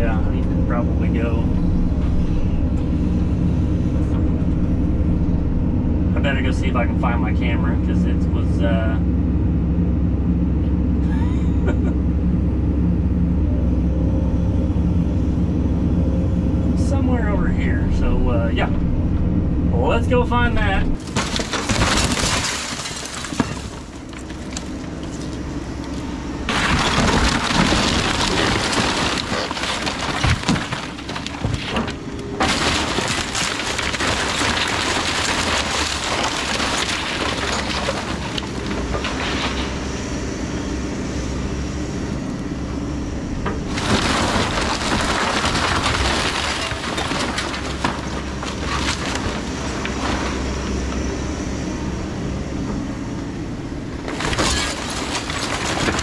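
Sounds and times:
excavator diesel engine running: 0:00.0 - 0:56.0
debris crashing down: 0:20.6 - 0:25.4, 0:26.5 - 0:40.0, 0:43.6 - 0:50.8, 0:54.1 - 0:56.0
timber cracking and splintering: 0:21.0 - 0:25.4, 0:26.5 - 0:39.8, 0:43.7 - 0:50.4, 0:54.1 - 0:56.0.

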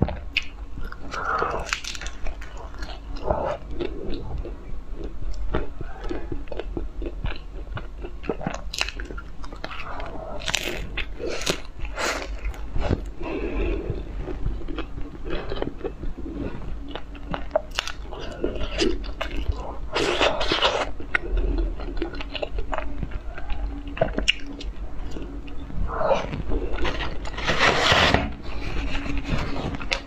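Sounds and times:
wet crunching chewing: 0:00.0 - 0:27.6.

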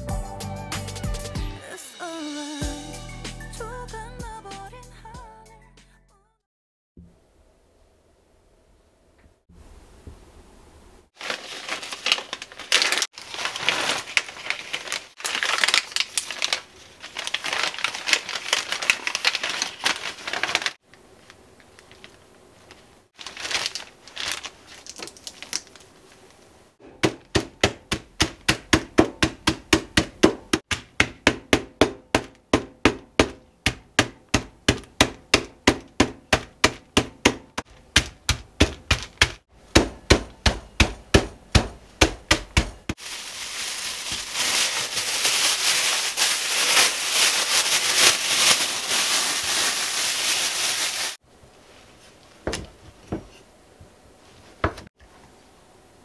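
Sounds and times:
pestle pounding nuts: 0:26.8 - 0:43.0.

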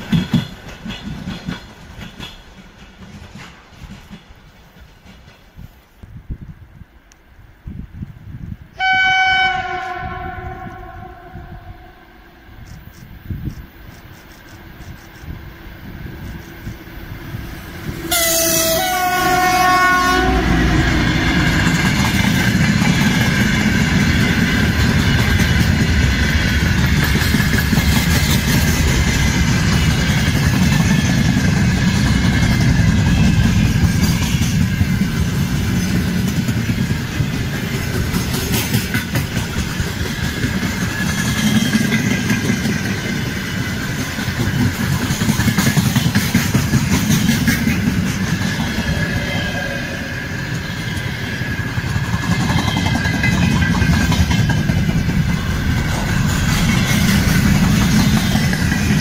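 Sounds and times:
locomotive horn: 0:08.8 - 0:12.2, 0:18.0 - 0:21.5
freight wagons rumbling past: 0:16.8 - 0:59.0.

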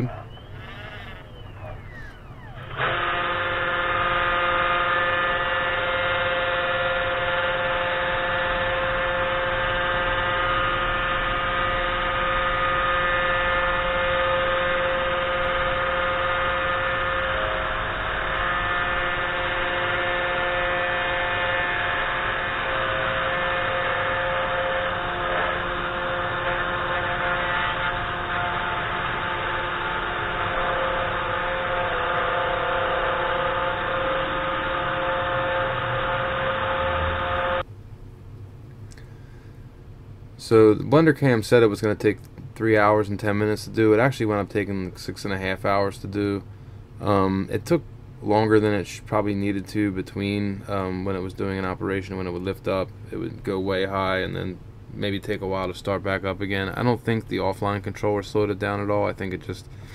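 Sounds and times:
stepper motor tones: 0:00.0 - 0:37.7
spindle motor whining hum: 0:00.0 - 0:59.9.

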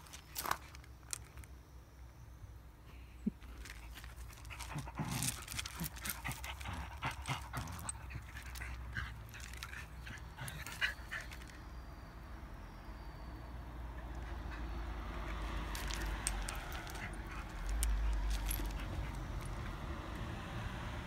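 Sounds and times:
paws shifting on gravel: 0:03.4 - 0:11.5, 0:15.3 - 0:19.6.

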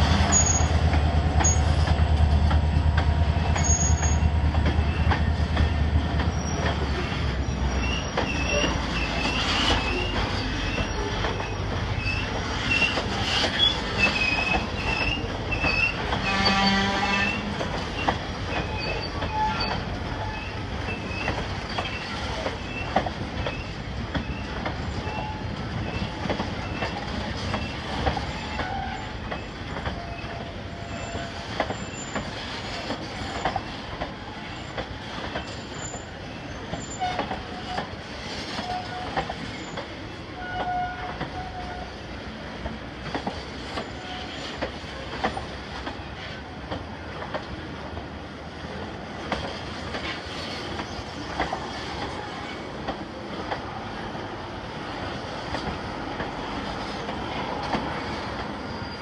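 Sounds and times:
freight train rumbling on rails: 0:00.0 - 0:59.0.

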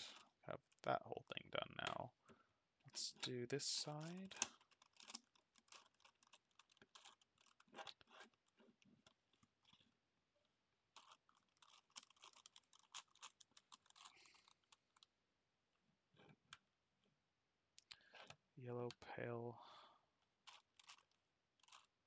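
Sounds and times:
plastic puzzle clicking: 0:04.0 - 0:09.8, 0:11.0 - 0:15.1, 0:20.4 - 0:21.9.

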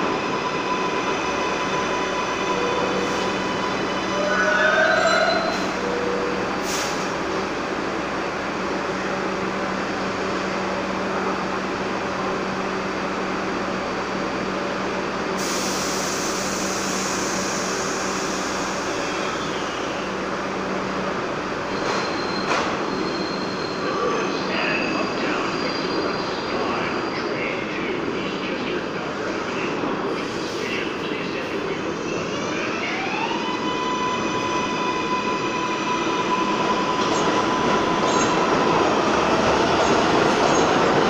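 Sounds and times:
subway train equipment humming: 0:00.0 - 0:41.0
air hissing: 0:15.4 - 0:19.3.

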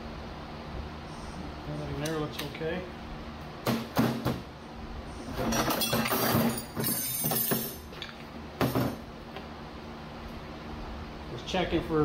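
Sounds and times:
metal parts clinking: 0:05.5 - 0:08.2.

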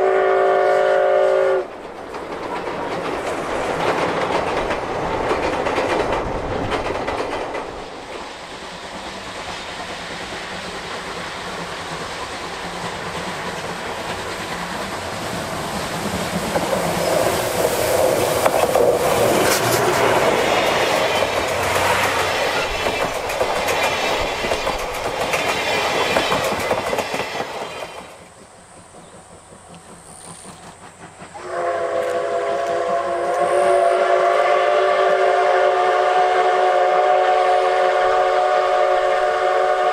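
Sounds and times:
steam whistle blast: 0:00.0 - 0:01.7, 0:31.4 - 0:39.9
train wheels clattering over rail joints: 0:01.6 - 0:33.4.

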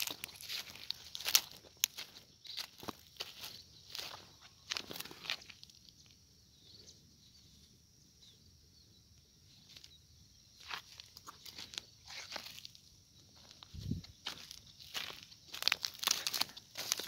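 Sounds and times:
footsteps crunching on dry soil: 0:00.0 - 0:06.2, 0:09.6 - 0:17.0.

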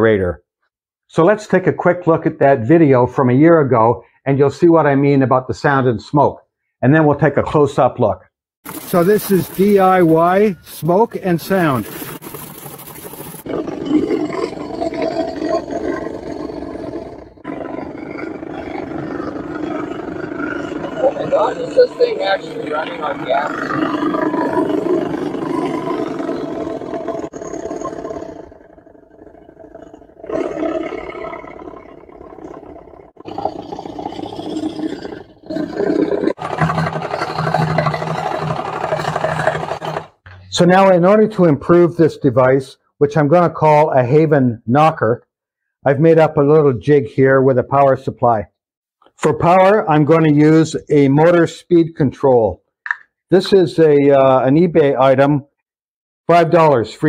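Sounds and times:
mechanical engine sound rattle: 0:33.3 - 0:40.2.

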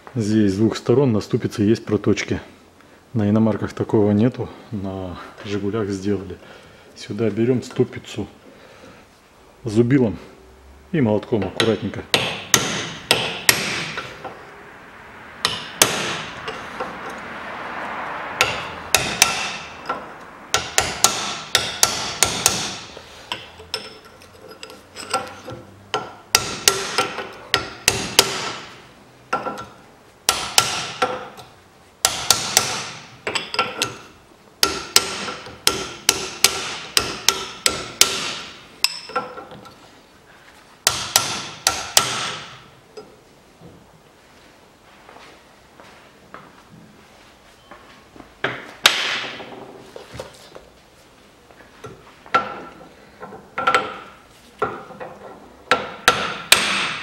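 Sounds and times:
hammer striking chisel on steel: 0:11.4 - 0:14.4, 0:15.4 - 0:17.2, 0:18.4 - 0:39.7, 0:40.8 - 0:43.1, 0:51.8 - 0:57.0.

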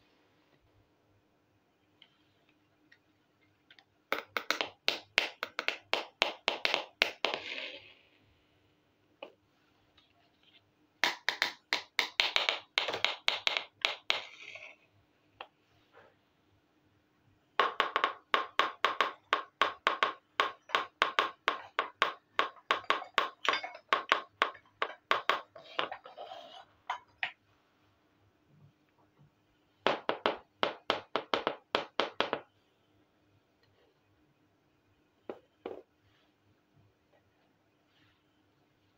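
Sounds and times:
plastic toy pieces tapping: 0:04.1 - 0:07.5, 0:11.0 - 0:14.4.

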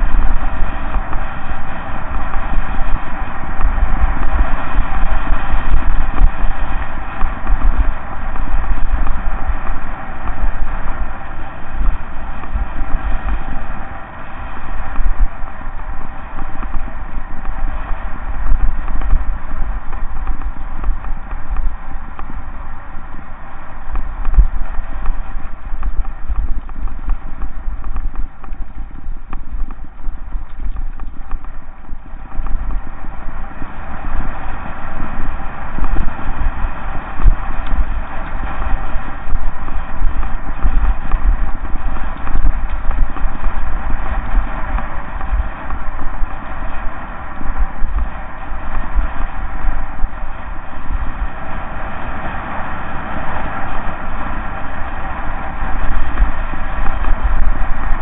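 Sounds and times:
bike tyres crunching over gravel: 0:00.0 - 0:58.0
wind rumble on microphone: 0:00.0 - 0:58.0
bike rattling and knocking: 0:23.7 - 0:33.0.

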